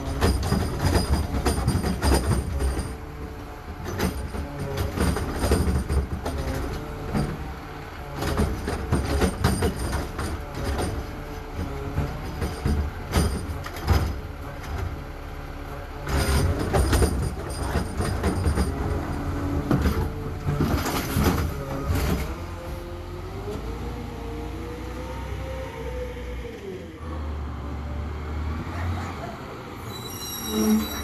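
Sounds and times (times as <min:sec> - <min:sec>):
metal clanks and bangs: 0:00.0 - 0:15.0, 0:16.0 - 0:22.4
high metallic squeals: 0:29.8 - 0:31.0
hydraulic whine: 0:29.8 - 0:31.0.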